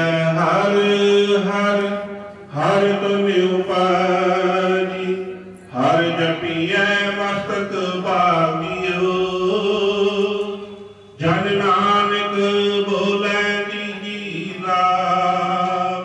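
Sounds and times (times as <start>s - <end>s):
devotional singing: 0.0s - 16.0s
steady held drone: 0.0s - 16.0s.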